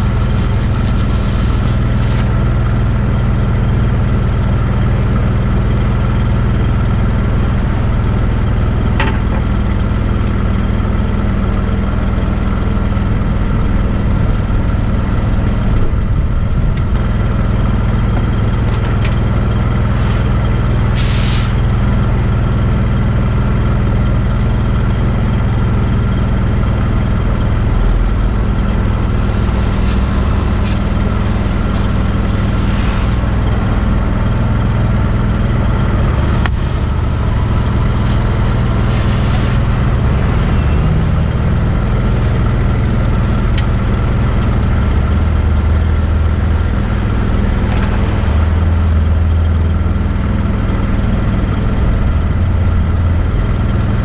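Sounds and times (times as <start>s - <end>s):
welding machine engine running: 0.0s - 11.3s, 16.2s - 40.1s
short hisses: 21.0s - 21.6s, 28.8s - 33.3s, 36.2s - 39.8s.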